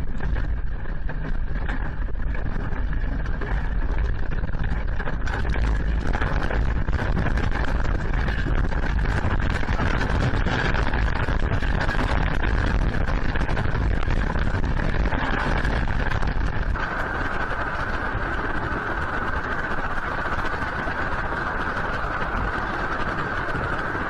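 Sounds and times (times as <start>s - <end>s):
dense crackle: 0.0s - 24.0s
earthquake rumbling: 0.0s - 24.0s.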